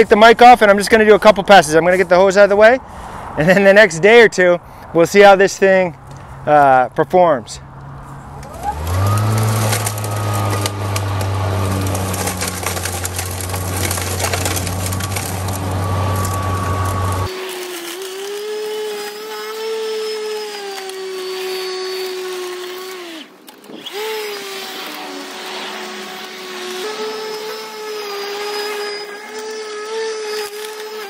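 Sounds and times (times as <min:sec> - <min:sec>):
lawn mower cutting grass: 0:08.0 - 0:31.0.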